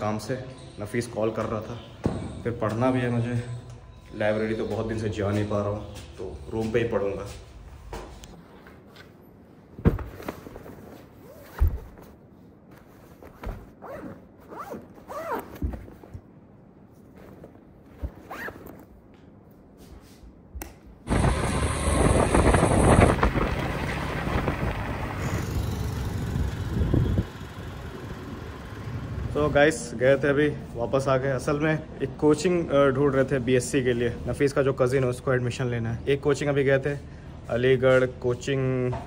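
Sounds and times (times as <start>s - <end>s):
backpack thumping on bed: 9.8s - 10.6s, 11.4s - 12.1s, 13.2s - 13.8s, 15.4s - 16.1s
road traffic din: 21.1s - 29.6s.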